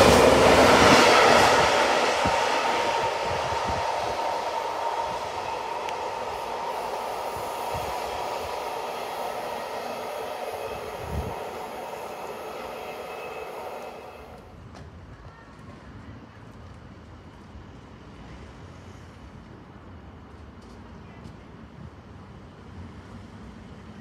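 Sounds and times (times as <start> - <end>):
train wagons rolling on track: 0.0 - 19.2.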